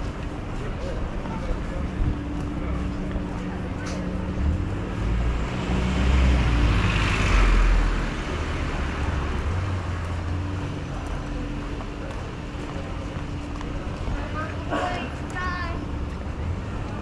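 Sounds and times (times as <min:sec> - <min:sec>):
city traffic: 0:00.0 - 0:17.0
vehicle passing by: 0:04.4 - 0:11.2.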